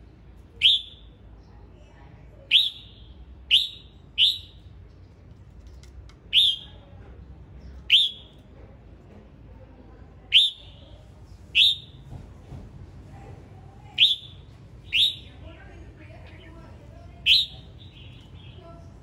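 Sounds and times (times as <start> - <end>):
bird calling sharp notes: 0.6 - 1.1, 2.5 - 4.6, 6.3 - 6.7, 7.9 - 8.3, 10.3 - 10.8, 11.6 - 12.0, 14.0 - 15.4, 17.2 - 18.6.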